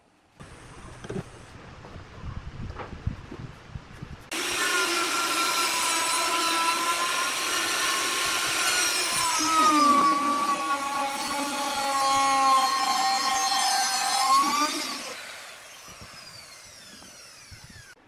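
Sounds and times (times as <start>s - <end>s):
electric router whine: 4.3s - 18.0s.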